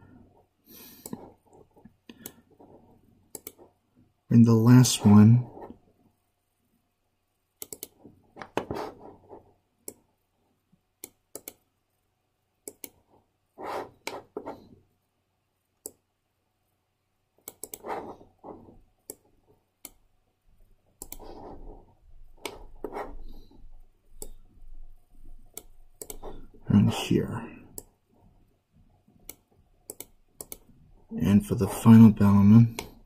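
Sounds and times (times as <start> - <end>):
soft rubbing noises: 2.5 - 3.8, 8.0 - 9.6, 13.0 - 14.8, 17.8 - 19.4, 21.2 - 25.5
mouse and keyboard clicks: 3.3 - 3.6, 7.6 - 8.7, 11.0 - 11.6, 12.6 - 13.0, 17.4 - 18.1, 21.0 - 21.4, 25.5 - 26.3, 29.3 - 30.7.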